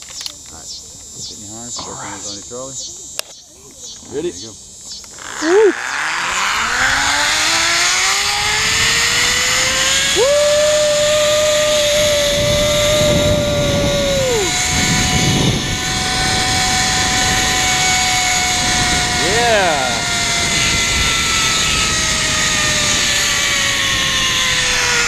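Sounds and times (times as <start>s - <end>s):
zip-line pulleys whining on cable: 3.6s - 25.0s
wind on microphone: 5.4s - 25.0s.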